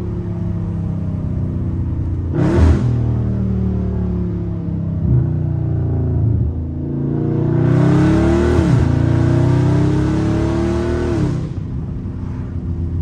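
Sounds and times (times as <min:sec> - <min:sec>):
car engine accelerating hard: 0:02.3 - 0:12.6.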